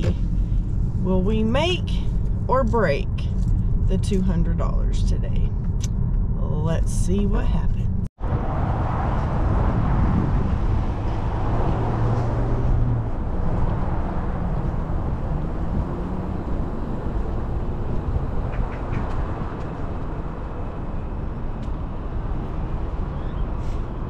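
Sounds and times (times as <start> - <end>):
low hum: 0.0 - 18.7
car engine and tyres rumbling: 0.0 - 24.0.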